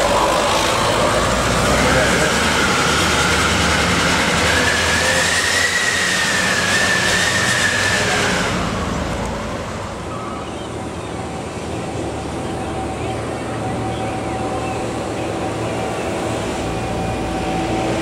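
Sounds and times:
truck engines humming: 0.0 - 18.0
truck traffic rumble: 0.0 - 18.0
high wavering squeal: 2.6 - 8.8.

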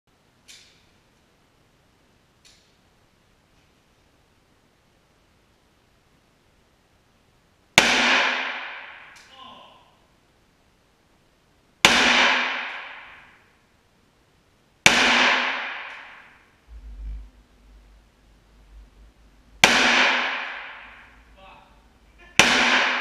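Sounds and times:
gunshots echoing indoors: 7.8 - 9.3, 11.8 - 13.6, 14.8 - 16.6, 19.6 - 21.5, 22.2 - 23.0.

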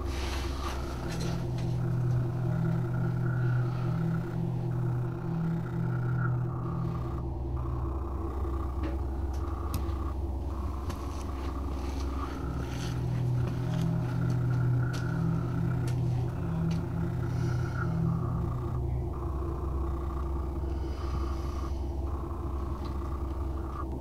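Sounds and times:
low droning hum: 0.0 - 24.0.

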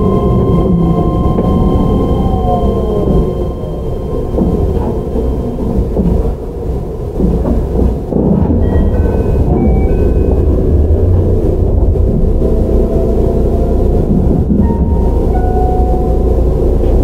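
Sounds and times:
faint whining motor tones: 0.0 - 6.7
train wheels rumbling on rail: 0.0 - 17.0.

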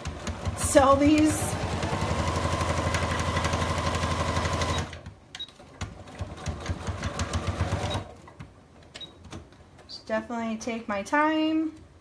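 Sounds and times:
sewing machine stitching: 0.0 - 8.3.

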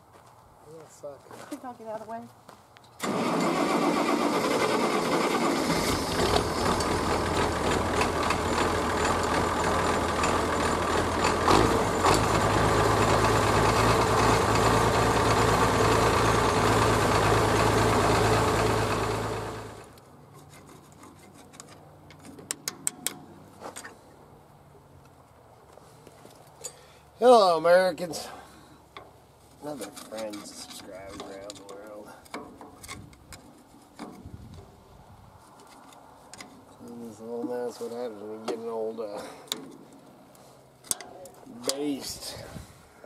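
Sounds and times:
tractor engine running: 3.0 - 20.0.

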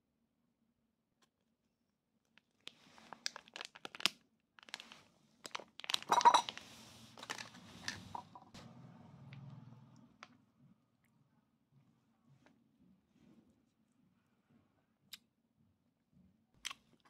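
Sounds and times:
plastic pouch crinkling: 2.4 - 8.2.

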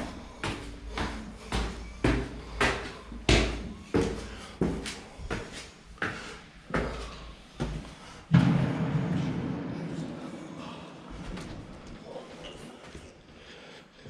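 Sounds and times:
echoing footsteps on hard floor: 0.0 - 9.7.

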